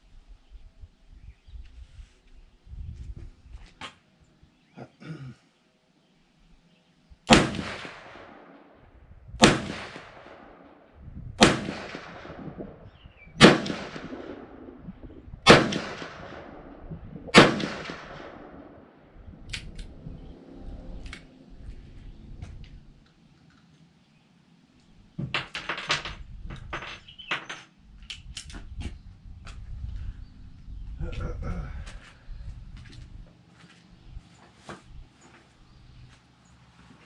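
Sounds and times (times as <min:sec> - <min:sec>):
revolver shots echoing: 0:09.4 - 0:10.7, 0:11.4 - 0:19.0.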